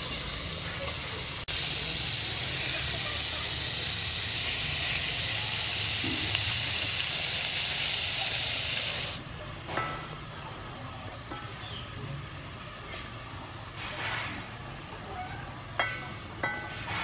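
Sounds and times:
fish sizzling in hot oil: 0:00.0 - 0:09.2.

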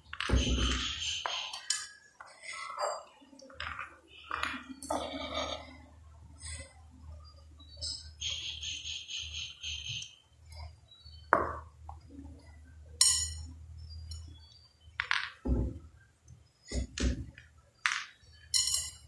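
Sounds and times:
sharp clinks: 0:13.0 - 0:14.4, 0:18.5 - 0:19.0.

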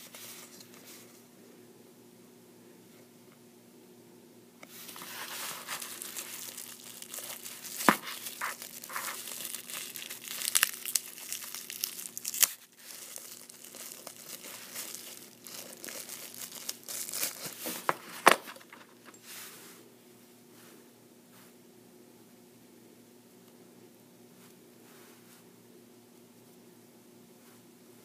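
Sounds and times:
plastic bag crinkling: 0:04.7 - 0:19.2.

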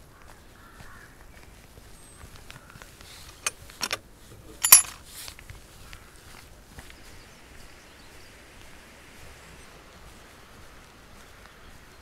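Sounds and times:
metal gate latch clicks: 0:03.3 - 0:04.0, 0:04.6 - 0:04.9
metallic gate latch clank: 0:03.4 - 0:04.0, 0:04.6 - 0:04.9.

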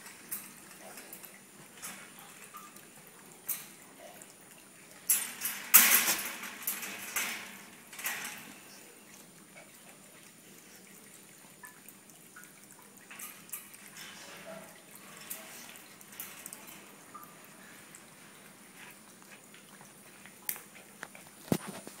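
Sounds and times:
animals scuffling in wire cage: 0:00.0 - 0:11.3, 0:12.8 - 0:22.0.

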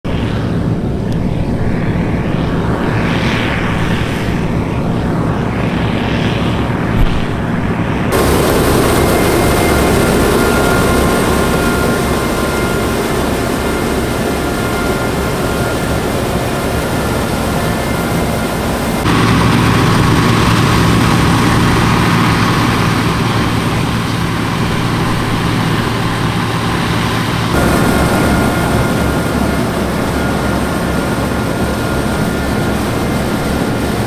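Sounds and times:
machinery whining: 0:03.7 - 0:34.0
diesel engine humming: 0:08.1 - 0:34.0.

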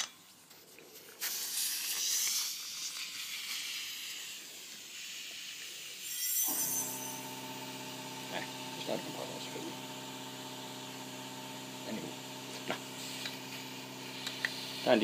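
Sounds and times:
compressed air hissing: 0:01.2 - 0:15.0
motor humming: 0:06.4 - 0:15.0.

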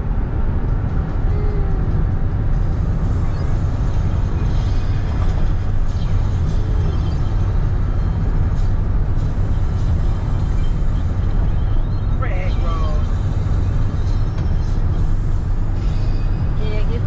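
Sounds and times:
road and wind noise in car: 0:00.0 - 0:17.0.

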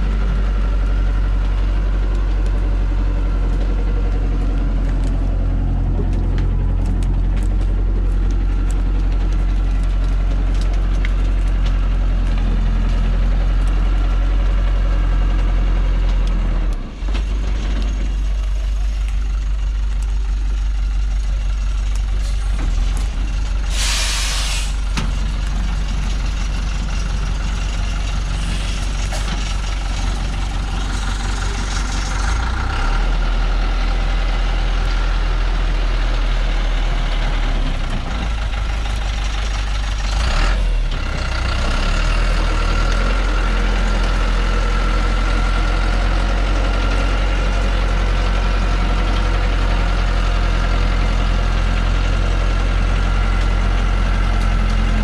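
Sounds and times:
diesel truck engine: 0:00.0 - 0:55.0
loud hiss: 0:23.6 - 0:24.9.

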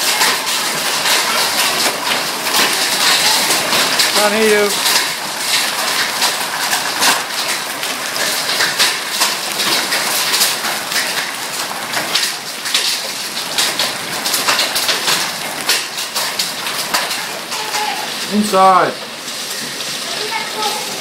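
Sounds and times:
hail and rain pelting: 0:00.0 - 0:21.0.

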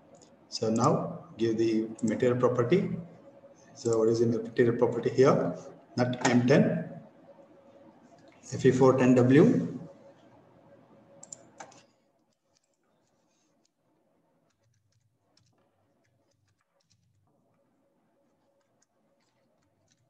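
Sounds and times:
computer mouse clicks: 0:11.2 - 0:13.8, 0:14.5 - 0:17.7, 0:18.4 - 0:20.0
keyboard typing: 0:11.2 - 0:13.8, 0:14.5 - 0:17.7, 0:18.3 - 0:20.0.

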